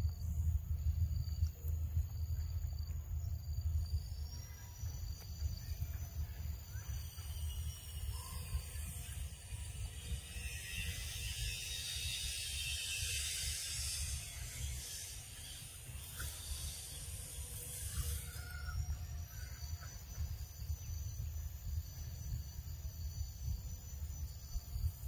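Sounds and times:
high rasping buzz: 6.8s - 19.6s.

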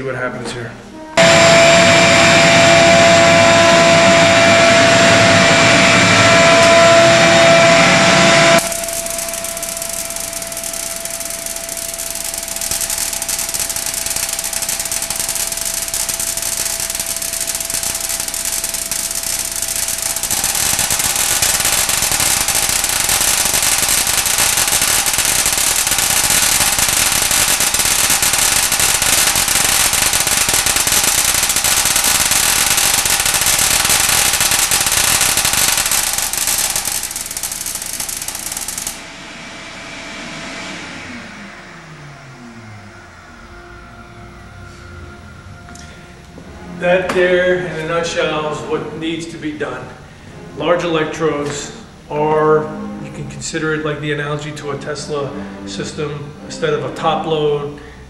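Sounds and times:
tesla coil humming: 0.7s - 58.0s
electric arcs crackling in water: 1.2s - 39.0s.

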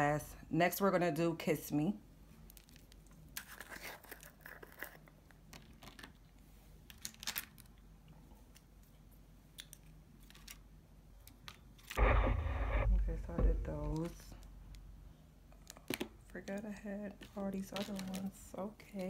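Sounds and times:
low steady hum: 7.7s - 19.0s.

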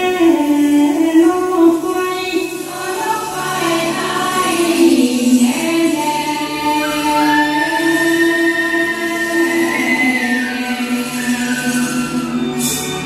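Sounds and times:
women singing together: 0.0s - 13.0s.

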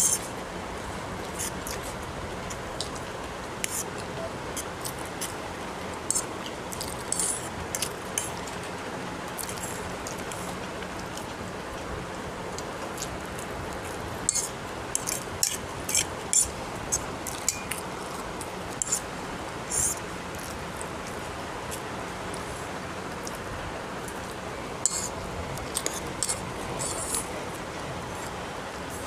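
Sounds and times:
steady hiss: 0.0s - 29.0s
fork scraping on plate: 6.1s - 7.5s, 14.3s - 16.5s, 18.8s - 19.0s, 24.8s - 25.1s
chewing noodles: 19.9s - 22.6s.

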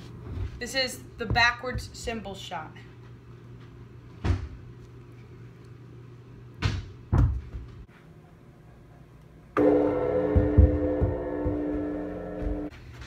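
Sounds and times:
dull thumps: 1.2s - 2.3s
cymbal ringing: 9.6s - 12.7s.

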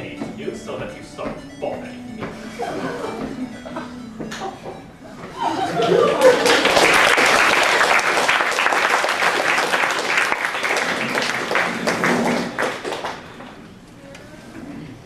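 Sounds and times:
audience applauding: 5.6s - 13.7s.

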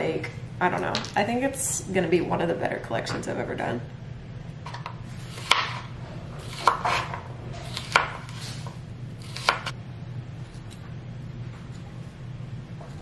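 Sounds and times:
knife slicing cucumber: 5.3s - 9.7s.

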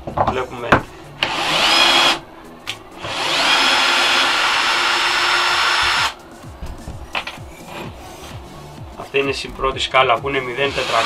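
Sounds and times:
drill motor whining into wood: 1.2s - 2.2s, 3.0s - 6.2s, 10.6s - 11.0s.

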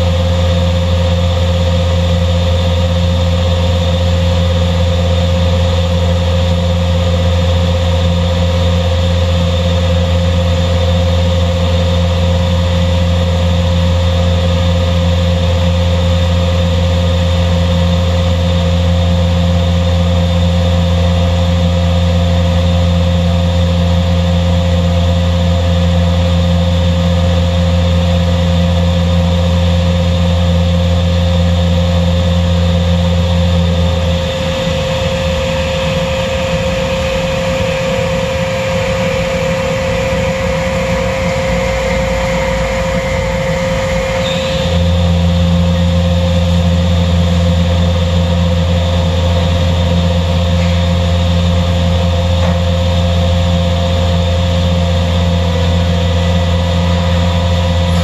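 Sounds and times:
panel saw humming: 27.0s - 58.0s.

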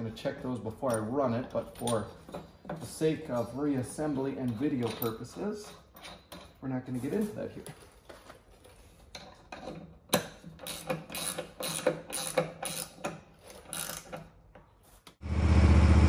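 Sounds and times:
ratchet wrench clicking: 10.1s - 14.3s
mower engine running: 15.2s - 16.0s.

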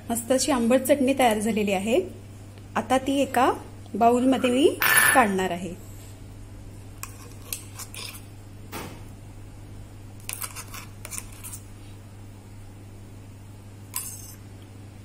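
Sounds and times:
low steady hum: 0.0s - 15.0s
spoon scraping a jar: 7.0s - 8.3s, 10.2s - 11.7s, 13.9s - 14.4s.

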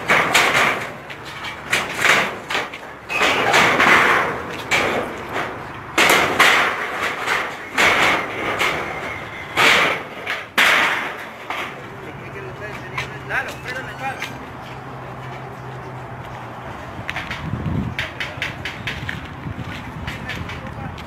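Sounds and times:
knocks: 0.0s - 11.8s
metal roofing sheets shifting: 0.0s - 12.1s
rubble clattering and scraping: 0.0s - 14.4s.

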